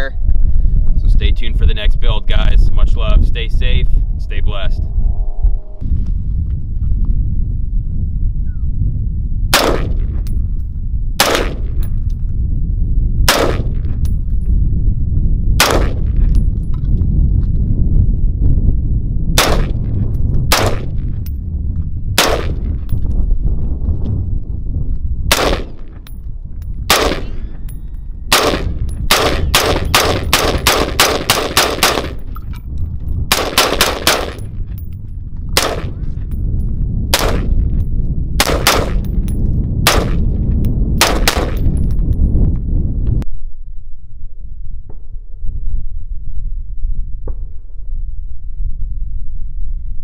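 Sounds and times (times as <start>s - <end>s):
rifle shots: 9.5s - 10.1s, 11.2s - 11.9s, 13.3s - 13.9s, 15.6s - 16.2s, 19.4s - 19.8s, 20.5s - 21.0s, 22.2s - 22.8s, 25.3s - 25.9s, 26.9s - 27.5s, 28.3s - 32.3s, 33.3s - 34.5s, 35.6s - 36.0s, 37.1s - 37.6s, 38.4s - 39.2s, 39.8s - 40.4s, 41.0s - 41.7s.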